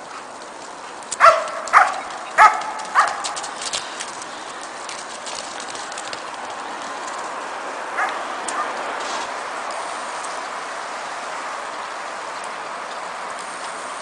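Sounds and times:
light clicking and crackling: 0.0s - 10.6s, 12.3s - 13.8s
dog barking: 1.2s - 3.4s, 8.0s - 8.8s.

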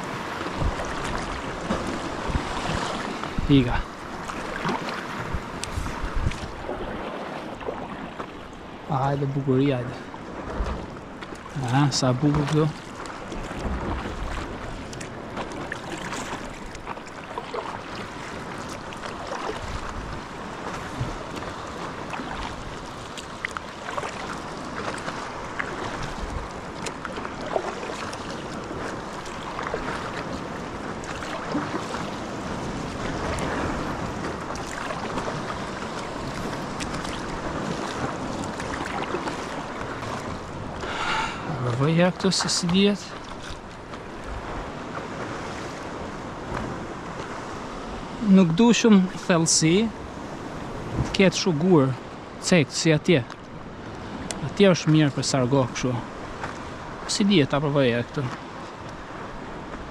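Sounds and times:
wind gusting on microphone: 0.0s - 8.1s, 49.8s - 51.3s
sea waves washing: 0.0s - 59.9s.

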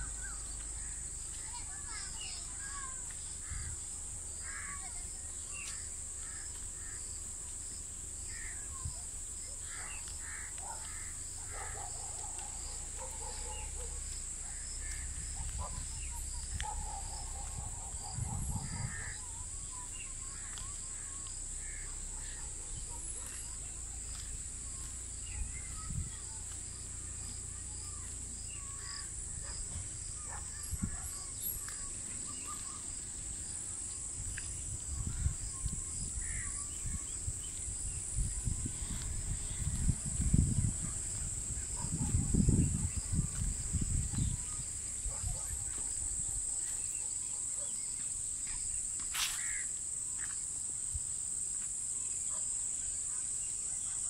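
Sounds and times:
birds calling: 0.0s - 48.0s
wind rumble on microphone: 14.6s - 20.2s, 24.6s - 28.0s, 28.8s - 31.8s, 34.0s - 46.4s.

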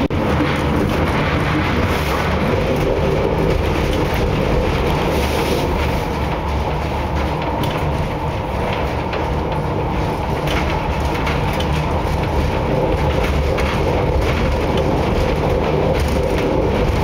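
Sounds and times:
steel wheels rumbling on rails: 0.0s - 17.0s.

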